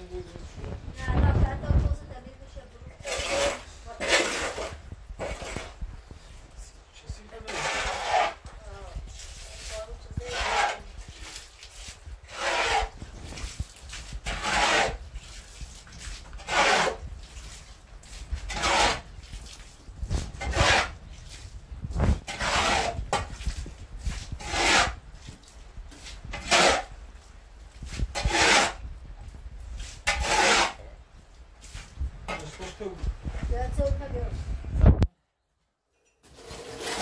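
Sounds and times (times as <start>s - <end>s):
shovel scraping earthen floor: 3.0s - 5.8s, 7.4s - 8.5s, 9.2s - 19.4s, 20.1s - 26.9s, 27.9s - 28.8s, 29.9s - 30.8s, 36.2s - 37.0s.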